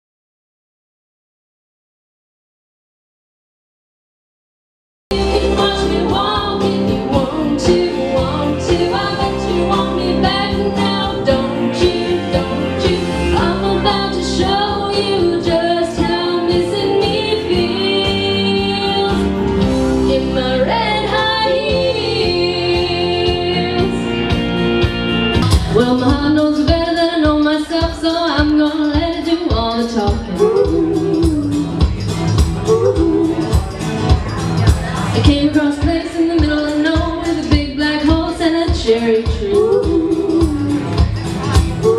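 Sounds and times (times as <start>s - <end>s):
woman singing: 5.1s - 19.4s, 20.0s - 24.1s, 25.7s - 31.9s, 32.7s - 33.7s, 35.1s - 41.1s
karaoke backing track: 5.1s - 41.9s.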